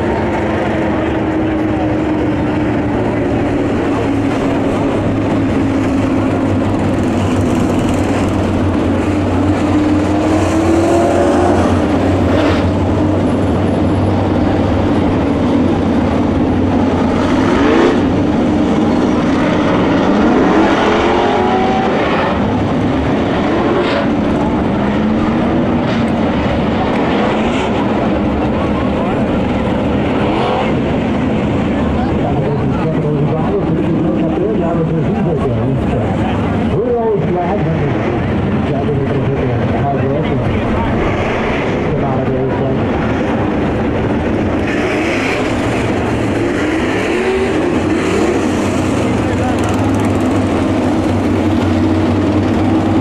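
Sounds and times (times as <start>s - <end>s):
engine revs: 0.0s - 15.2s, 16.2s - 31.8s, 42.9s - 53.0s
race car engines droning: 0.0s - 53.0s.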